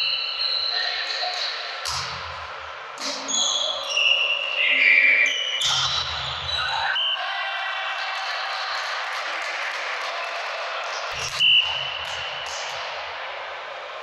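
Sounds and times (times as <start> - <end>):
shoe squeaks: 3.1 - 6.7.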